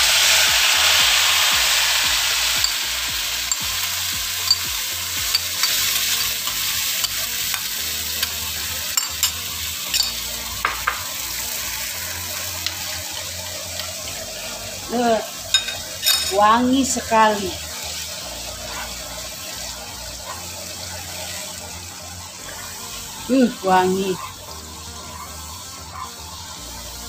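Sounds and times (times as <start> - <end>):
paste sizzling in hot oil: 0.0 - 27.0
metal spoon clinking: 3.5 - 3.7, 4.5 - 4.7, 5.3 - 7.2, 9.0 - 10.2, 15.5 - 16.4.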